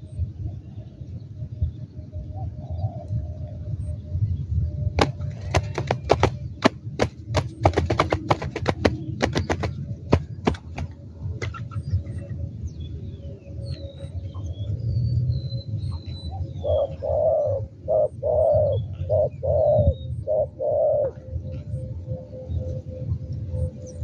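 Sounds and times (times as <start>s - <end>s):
dove cooing: 5.0s - 12.2s, 16.3s - 21.6s
small birds chirping: 5.0s - 20.5s.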